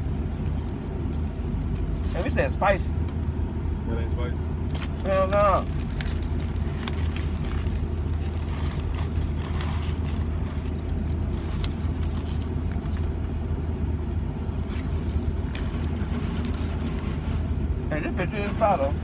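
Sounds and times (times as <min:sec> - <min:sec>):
car cabin hum: 0:00.0 - 0:19.0
paper wrapper crinkling: 0:04.7 - 0:13.2, 0:14.6 - 0:17.1.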